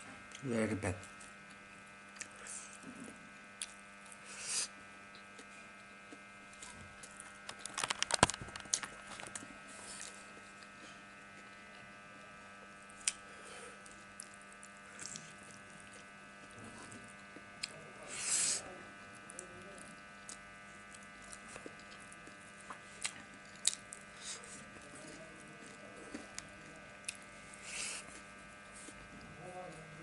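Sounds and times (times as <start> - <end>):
electrical hum: 0.0 - 30.0
person eating: 6.5 - 11.7, 13.0 - 18.6, 19.4 - 29.1.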